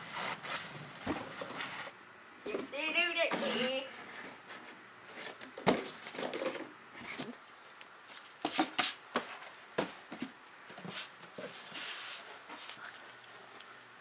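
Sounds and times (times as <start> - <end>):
cardboard scraping and rustling: 0.0 - 2.0.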